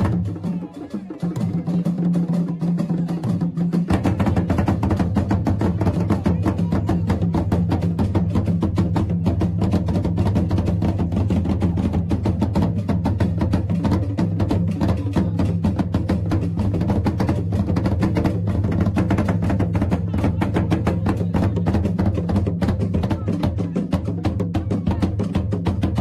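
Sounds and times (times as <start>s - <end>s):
fast drumming and percussion: 0.0s - 26.0s.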